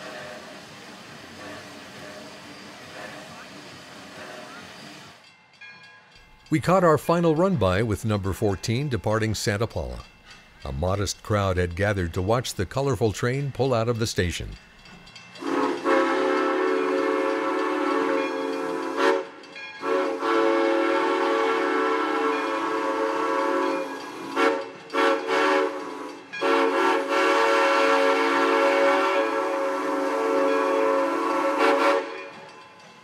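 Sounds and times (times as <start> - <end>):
steam locomotive whistle: 15.4 - 32.4.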